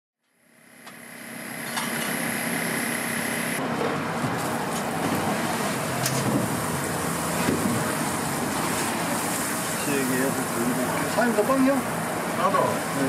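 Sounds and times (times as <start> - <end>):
thin high whine: 0.2 - 3.6
street background noise: 0.8 - 13.0.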